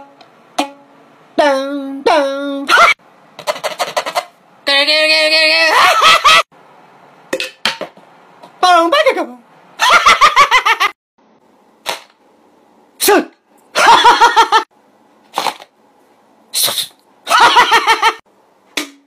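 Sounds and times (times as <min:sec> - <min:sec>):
man making goofy vocal noises: 0:04.7 - 0:06.0
man laughing: 0:05.6 - 0:06.4, 0:13.8 - 0:14.7, 0:17.3 - 0:18.2.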